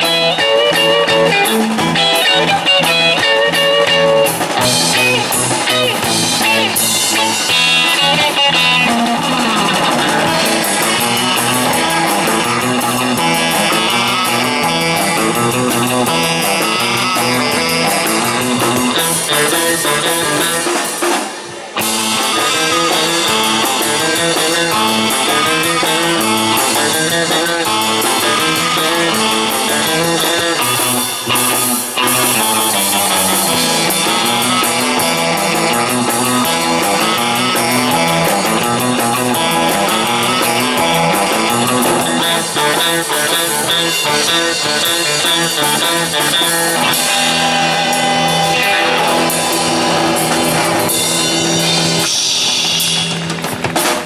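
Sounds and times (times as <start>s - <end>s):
saxophone: 0.0s - 20.8s
drum kit: 0.0s - 54.0s
electric guitar: 0.0s - 54.0s
walking electric bass: 0.0s - 54.0s.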